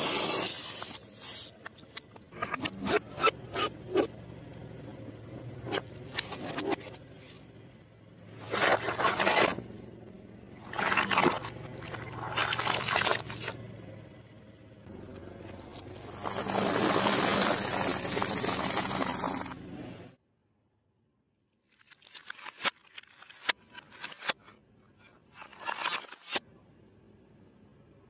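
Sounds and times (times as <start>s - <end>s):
car engine humming: 1.6s - 20.2s
car tyre crushing objects: 15.2s - 19.7s.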